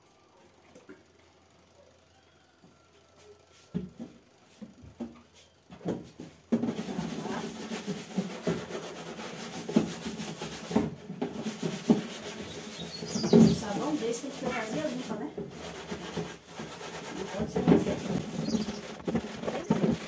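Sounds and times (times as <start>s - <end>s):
scraping and rubbing with clicks: 4.6s - 20.0s
scattered knocks: 5.8s - 20.0s.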